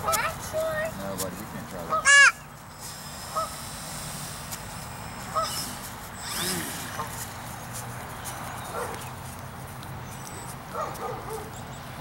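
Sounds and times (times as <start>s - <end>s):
electric model plane motor whine: 2.2s - 7.5s.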